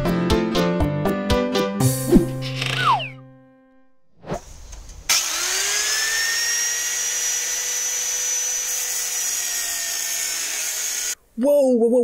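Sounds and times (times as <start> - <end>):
angle grinder grinding metal: 5.1 - 11.2.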